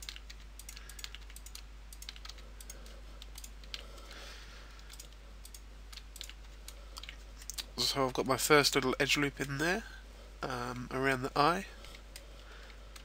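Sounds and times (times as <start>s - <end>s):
mouse and keyboard clicking: 0.0s - 3.9s, 4.8s - 7.6s.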